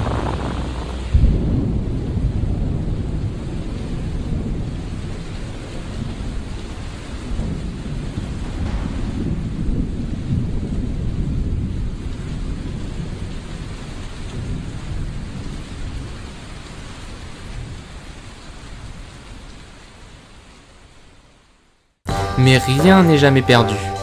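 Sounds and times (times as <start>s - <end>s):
deep rolling thunder: 0.0s - 18.0s
rain: 0.0s - 22.0s.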